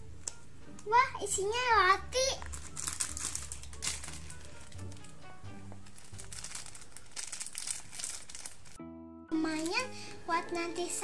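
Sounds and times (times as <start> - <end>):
light background music: 0.0 - 11.0
plastic wrapper crinkling: 2.4 - 8.8.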